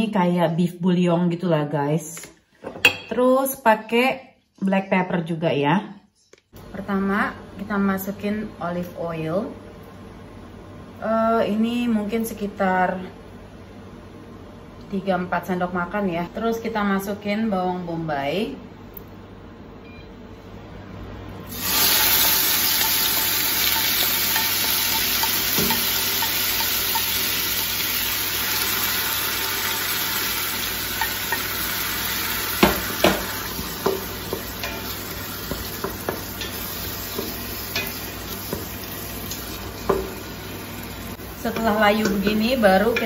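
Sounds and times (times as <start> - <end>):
onion sizzling in hot oil: 21.5 - 43.0
wooden spoon knocking pot: 32.6 - 38.8.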